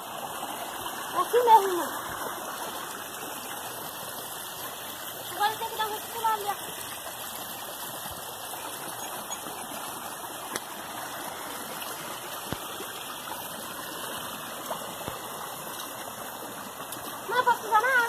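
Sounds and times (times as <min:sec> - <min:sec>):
river running over rocks: 0:00.0 - 0:18.0.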